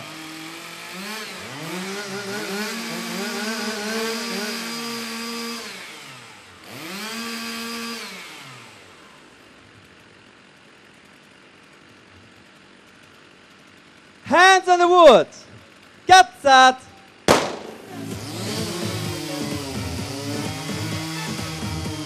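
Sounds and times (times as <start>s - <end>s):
chainsaws revving and idling: 0.0s - 22.0s.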